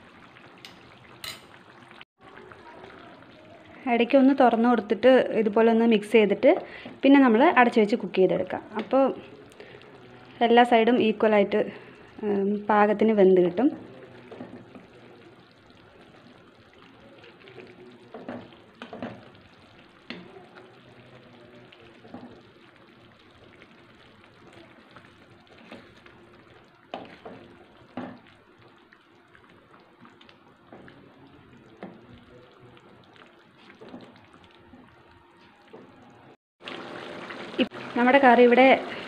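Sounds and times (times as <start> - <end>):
faint simmer: 0.0 - 39.0
spatula stirring thick curry: 13.4 - 35.9.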